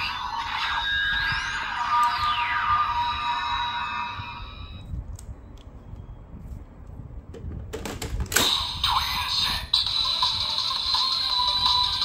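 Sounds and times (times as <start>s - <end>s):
toy belt electronic sound effects: 0.0s - 4.8s.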